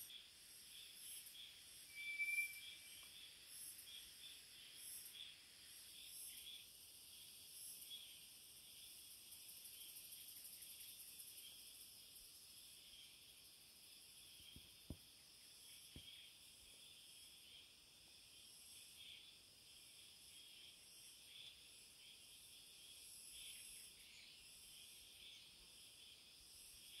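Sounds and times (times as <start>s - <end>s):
high-pitched insect chorus: 0.0s - 27.0s.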